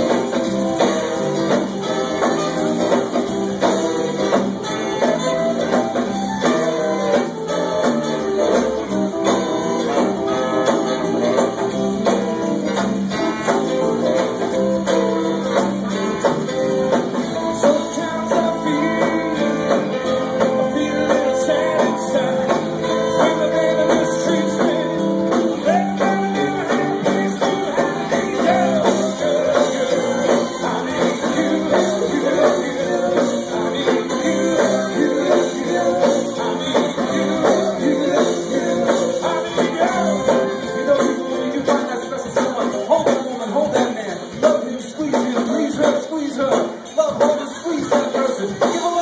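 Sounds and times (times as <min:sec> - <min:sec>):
saxophone: 0:00.0 - 0:42.2
electric guitar: 0:00.0 - 0:42.7
bass guitar: 0:00.0 - 0:49.0
drums: 0:00.0 - 0:49.0
group of singers: 0:17.3 - 0:43.2
lead vocal singing: 0:17.3 - 0:49.0.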